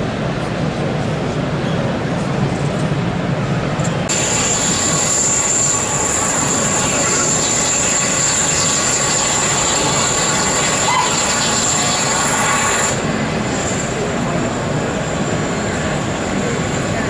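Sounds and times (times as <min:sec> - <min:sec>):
high-pitched whine: 0:03.6 - 0:17.0
model train rumbling: 0:04.1 - 0:17.0.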